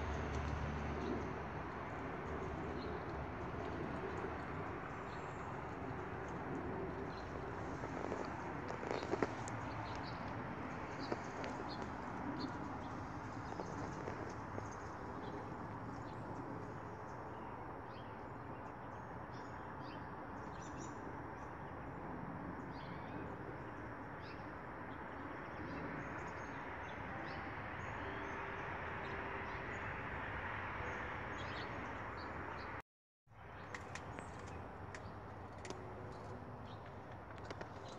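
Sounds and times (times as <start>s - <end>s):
small birds chirping: 2.5s - 18.1s.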